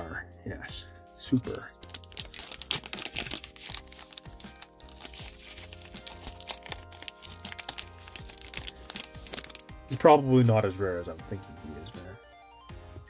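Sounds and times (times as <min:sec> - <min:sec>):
foil pack crinkling and tearing: 0:01.3 - 0:09.7.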